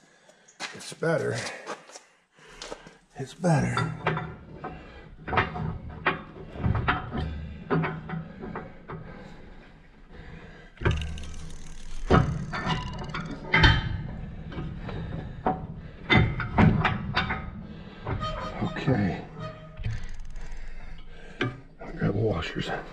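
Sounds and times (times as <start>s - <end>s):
metal drill parts clanking: 10.8s - 13.8s.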